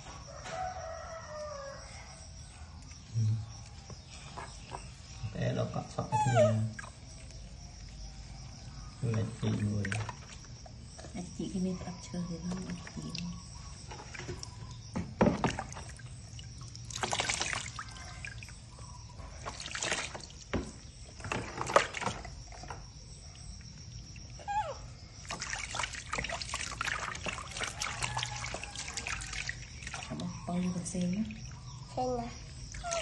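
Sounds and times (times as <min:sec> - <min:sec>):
water splashing in plastic tub: 0:08.9 - 0:31.8, 0:32.5 - 0:33.0.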